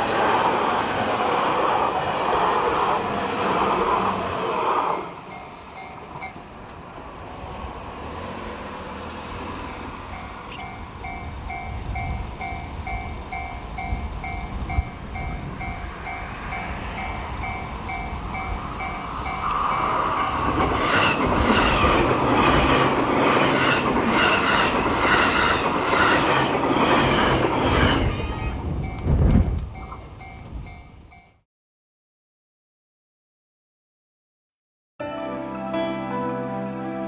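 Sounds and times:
level-crossing alarm bell ringing: 10.1 - 20.4.

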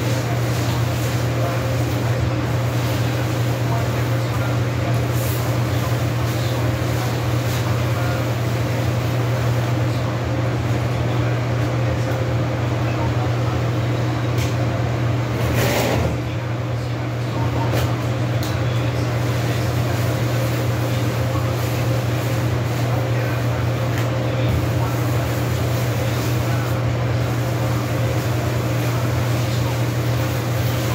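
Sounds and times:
rag scrubbing tile floor: 0.0 - 9.1, 19.2 - 30.9
low machine hum: 0.0 - 30.9.

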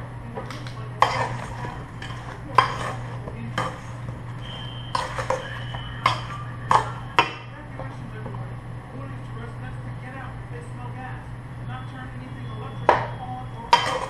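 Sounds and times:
steady low hum: 0.0 - 14.0
metal tongs clinking against bowl: 0.4 - 3.9, 4.9 - 7.5, 12.8 - 14.0
metal bowl ringing: 4.4 - 7.6, 11.8 - 14.0.

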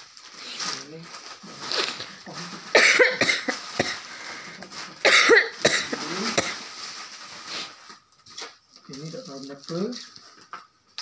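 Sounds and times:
person coughing: 2.7 - 4.1, 5.0 - 6.6.

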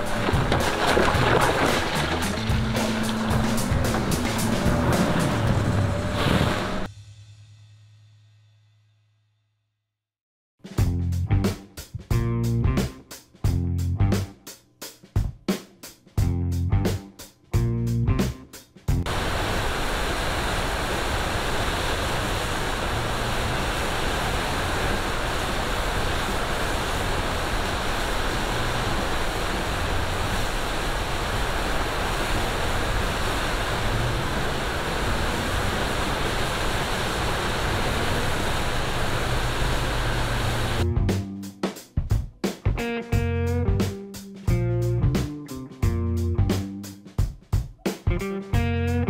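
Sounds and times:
waterfall rushing: 0.0 - 6.9, 19.1 - 40.8.

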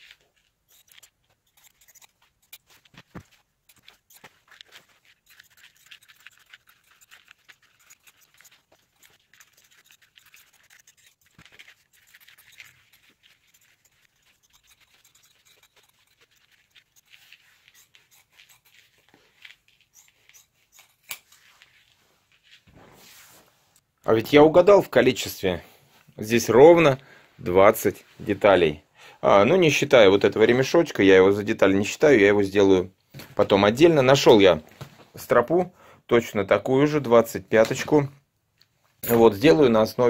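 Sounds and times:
fabric rustling: 0.0 - 24.0
scissors snipping fabric: 0.2 - 21.4.

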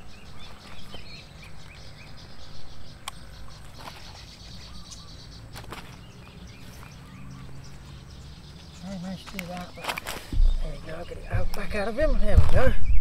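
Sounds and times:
birds chirping: 0.0 - 13.0
insects chirping: 0.0 - 13.0
steady low rumble: 10.3 - 13.0.

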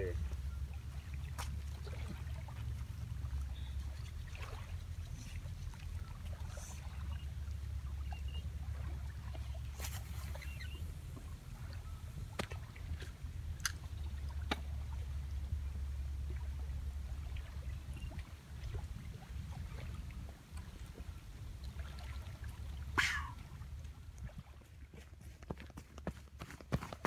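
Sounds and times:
low wind rumble: 7.0 - 25.1.

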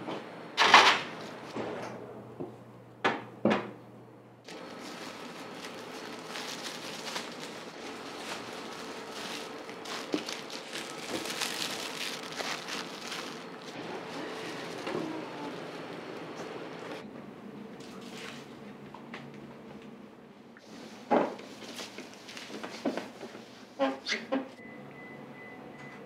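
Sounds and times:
plastic bags crinkling: 4.5 - 17.0.

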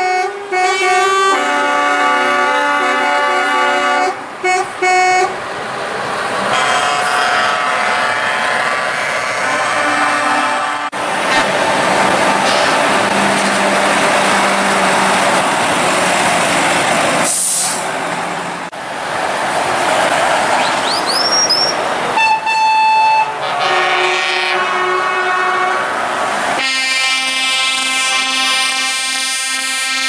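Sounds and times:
air horns blasting: 0.0 - 5.4, 6.5 - 11.0, 22.1 - 26.0, 26.6 - 30.0
heavy trucks passing: 0.0 - 30.0.

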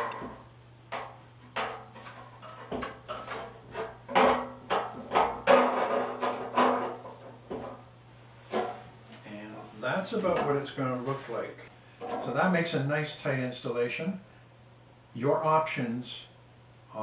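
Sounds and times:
metal clunks and scrapes: 1.5 - 7.8.

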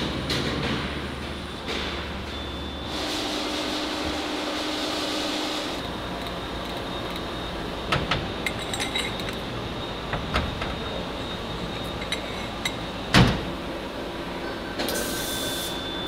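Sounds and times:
machine shop hum: 0.0 - 16.0
metal clinks and knocks: 8.4 - 9.4.

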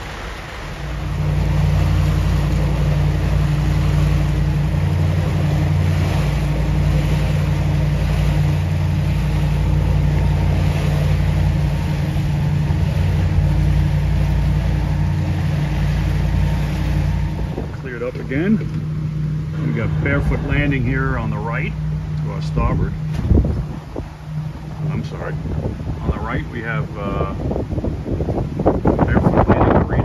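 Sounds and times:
boat engines droning: 0.0 - 30.0
wind and water noise: 0.0 - 30.0.

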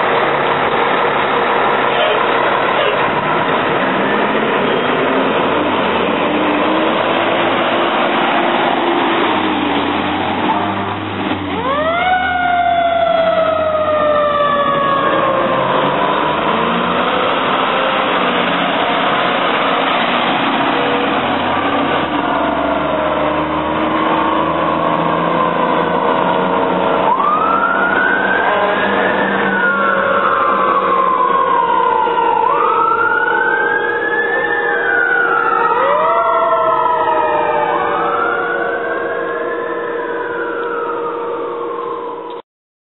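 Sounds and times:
fire truck siren wailing: 0.0 - 42.4
truck engine rumbling: 0.0 - 42.4.

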